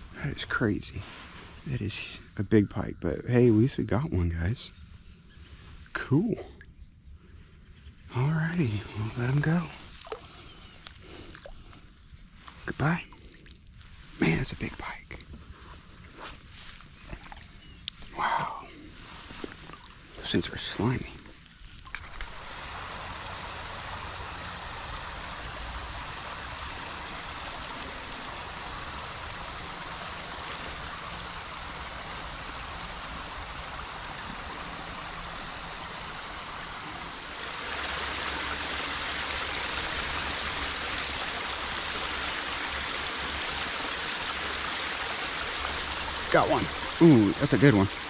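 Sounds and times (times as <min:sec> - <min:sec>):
water spilling over dam: 0:09.0 - 0:10.4, 0:21.8 - 0:48.0.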